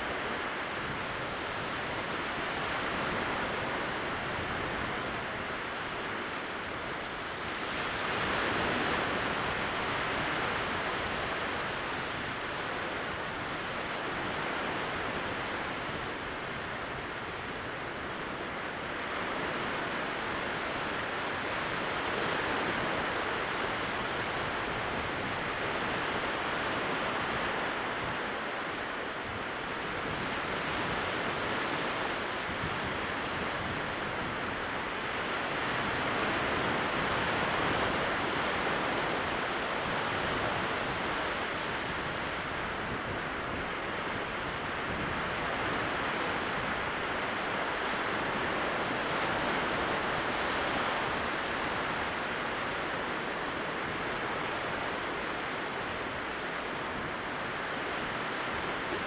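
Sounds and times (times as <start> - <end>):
small waves breaking on shore: 0.0 - 59.0.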